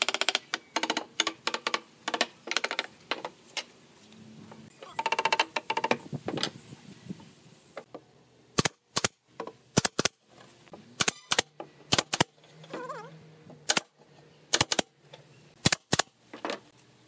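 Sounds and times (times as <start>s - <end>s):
nail gun firing: 8.6s - 10.2s, 11.0s - 12.4s, 13.6s - 14.9s, 15.6s - 16.2s.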